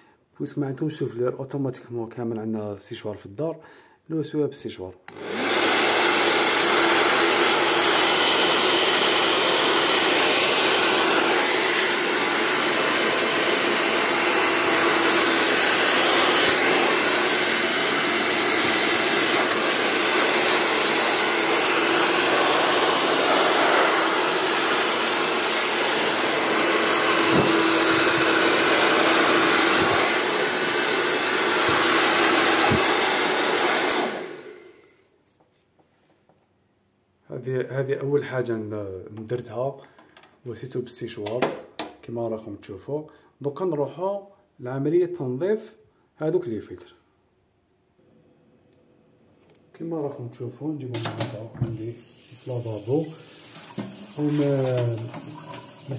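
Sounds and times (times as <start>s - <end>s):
hair dryer blowing: 5.1s - 35.0s, 52.1s - 55.9s.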